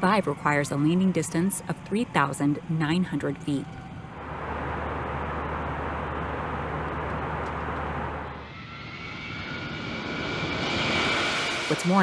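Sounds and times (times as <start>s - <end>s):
turbine whine: 0.0s - 12.0s
jet engine rush: 3.7s - 12.0s.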